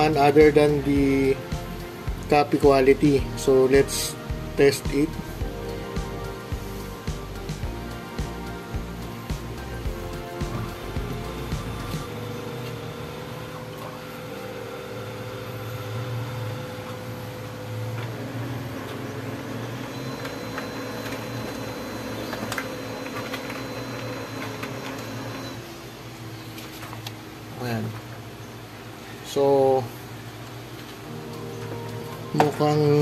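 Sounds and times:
copier motors and fan humming: 0:00.0 - 0:33.0
copier clicks: 0:19.8 - 0:25.6.

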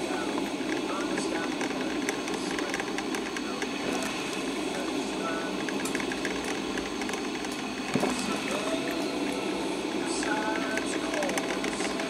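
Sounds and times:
coffee maker hissing and gurgling: 0:00.0 - 0:12.0
small crackles and pops: 0:00.4 - 0:04.5, 0:05.6 - 0:08.3.

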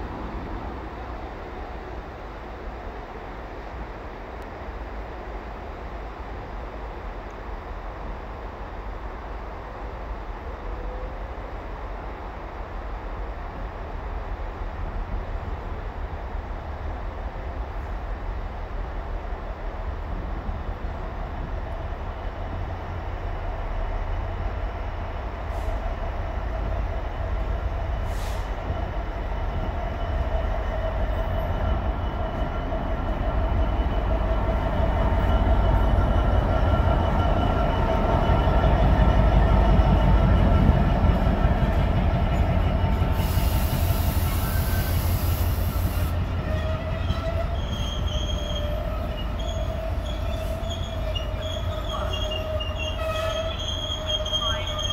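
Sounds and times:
diesel locomotive engine rumble: 0:00.0 - 0:54.9
train wagons rolling: 0:27.8 - 0:54.9
brief hiss: 0:28.0 - 0:28.6, 0:43.2 - 0:46.2
wheel squeal: 0:46.4 - 0:54.9.

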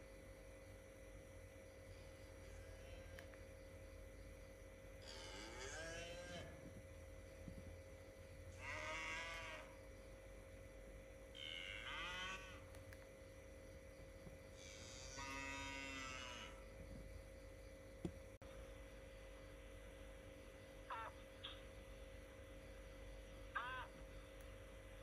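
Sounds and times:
cattle mooing: 0:05.0 - 0:06.6, 0:08.6 - 0:09.7, 0:11.4 - 0:12.6, 0:14.8 - 0:16.6.

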